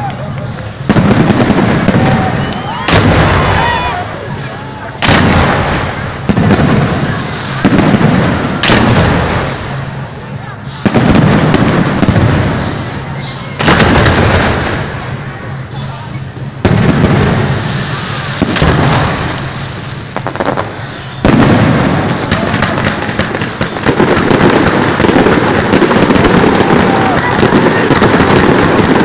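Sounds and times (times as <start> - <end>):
crackling firework pops: 0.0 - 3.4, 18.3 - 29.0.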